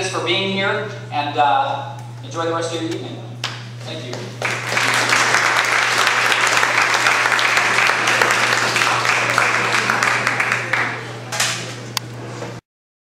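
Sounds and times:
steady low hum: 0.0 - 12.6
audience applauding: 4.4 - 11.2.

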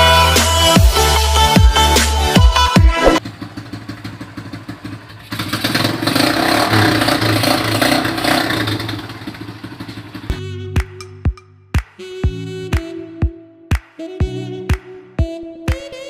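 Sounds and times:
motorcycle engine running: 1.6 - 10.6.

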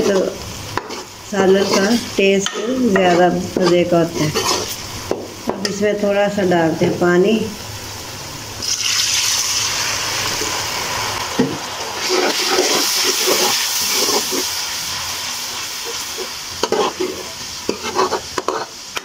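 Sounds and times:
ladle stirring and scraping: 0.0 - 4.8, 12.0 - 14.5, 15.8 - 19.0
masala sizzling in a pan: 0.0 - 19.0.

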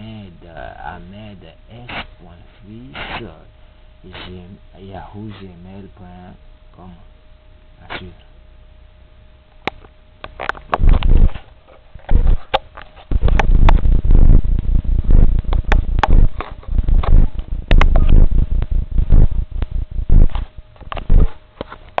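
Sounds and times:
sharp clicks and knocks: 9.6 - 14.3, 15.1 - 22.0
camera handling rumble: 9.6 - 22.0.

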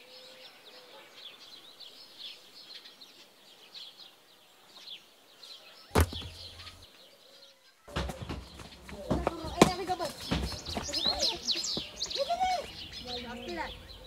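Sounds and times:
small birds chirping: 0.0 - 14.0
flip-flop landing thud: 5.9 - 6.8, 7.9 - 10.7.

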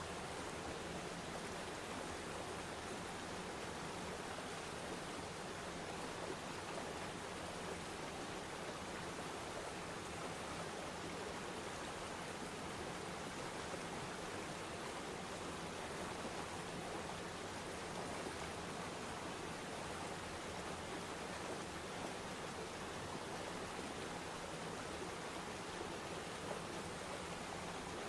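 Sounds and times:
waterfall and river rapids rushing: 0.0 - 28.0.

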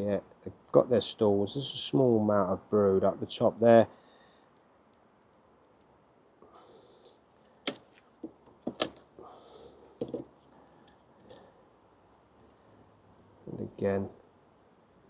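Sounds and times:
wooden frames knocking: 7.7 - 9.0, 10.0 - 10.3.

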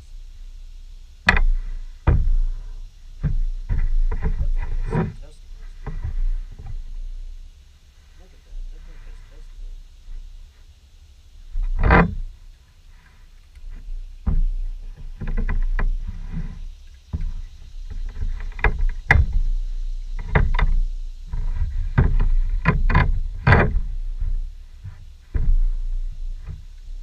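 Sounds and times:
steady low rumble: 0.0 - 27.0.

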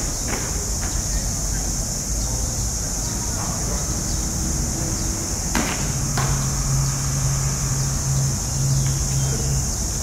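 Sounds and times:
low steady hum: 0.0 - 10.0
high-pitched buzz: 4.3 - 10.0.

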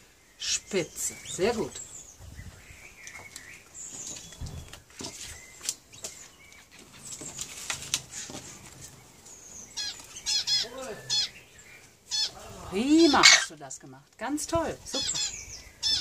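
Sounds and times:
parrot chirping: 9.6 - 13.5, 14.9 - 16.0.

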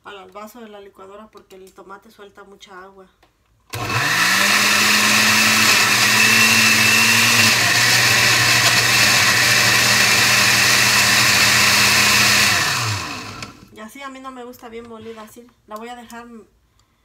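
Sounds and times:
blender motor grinding: 3.7 - 13.7.

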